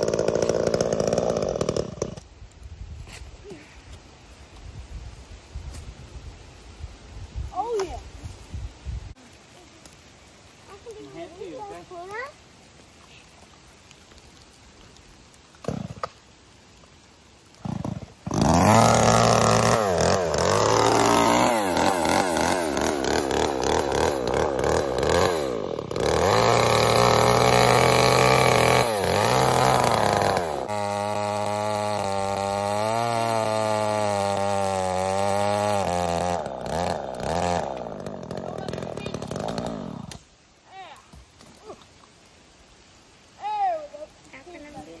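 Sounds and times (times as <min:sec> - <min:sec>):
chainsaw cutting wood: 0:00.0 - 0:02.3, 0:15.6 - 0:16.2, 0:17.5 - 0:40.3.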